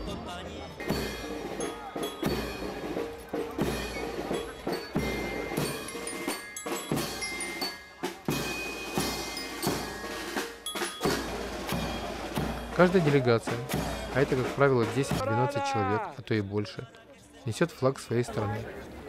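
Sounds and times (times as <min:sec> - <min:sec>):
bass drum beat: 0:00.8 - 0:15.5
snare drums: 0:00.8 - 0:15.6.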